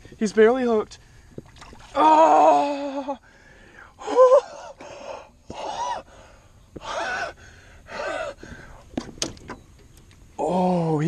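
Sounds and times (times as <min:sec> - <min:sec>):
man gasping and crying out: 0:06.8 - 0:08.7.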